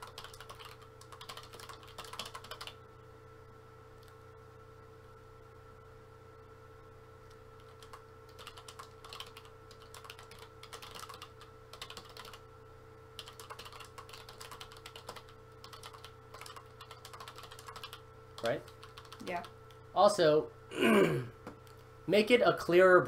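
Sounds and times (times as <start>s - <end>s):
fast typing on a keyboard: 0.0s - 2.8s, 7.6s - 12.4s, 13.2s - 19.6s
faint steady hum: 0.0s - 23.0s.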